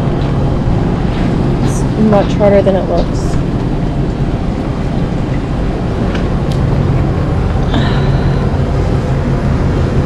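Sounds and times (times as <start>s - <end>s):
faint hum: 0.0s - 10.0s.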